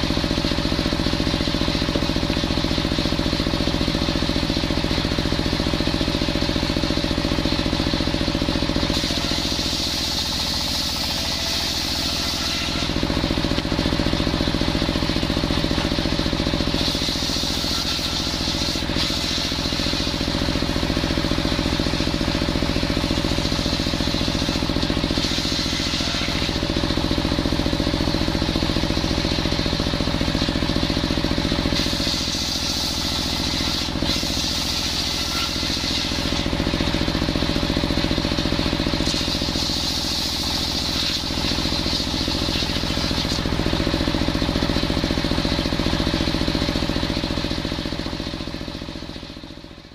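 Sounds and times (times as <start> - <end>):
saw engine running: 0.0 - 49.9
circular saw blade cutting wood: 5.1 - 30.4, 31.2 - 37.8, 38.5 - 44.1.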